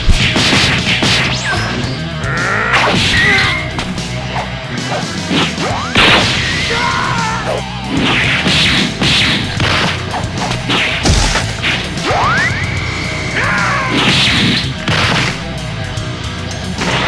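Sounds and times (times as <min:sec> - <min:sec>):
hits and whooshes: 0:07.9 - 0:12.1
crashing impact: 0:10.9 - 0:11.8.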